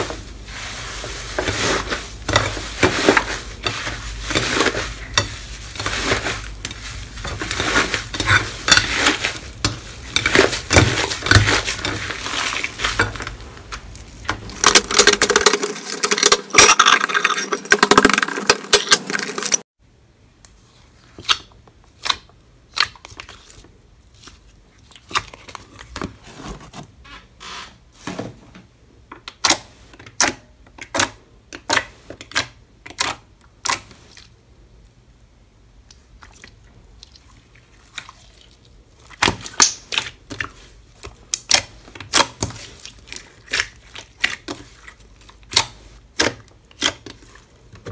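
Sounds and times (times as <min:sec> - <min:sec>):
slime squelching: 0:00.0 - 0:16.2, 0:35.9 - 0:47.9.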